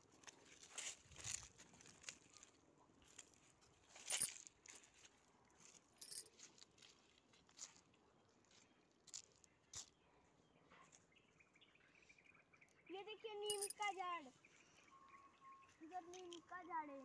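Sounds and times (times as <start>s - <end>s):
footsteps on dry leaves: 0.2s - 9.9s.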